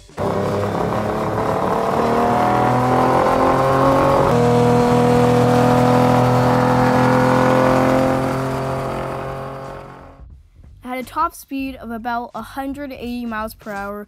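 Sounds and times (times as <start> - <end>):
car engine accelerating hard: 0.0 - 10.2.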